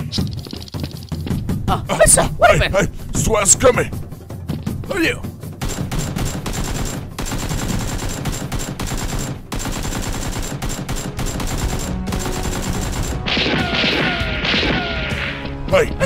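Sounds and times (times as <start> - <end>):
rapid automatic gunfire: 5.6 - 14.1.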